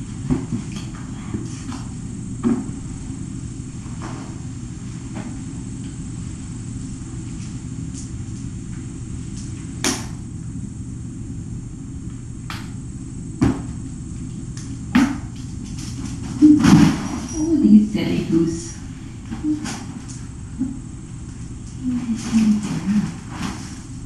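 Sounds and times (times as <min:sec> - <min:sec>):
low room hum: 0:00.0 - 0:24.0
kittens thumping on floor: 0:15.0 - 0:17.3.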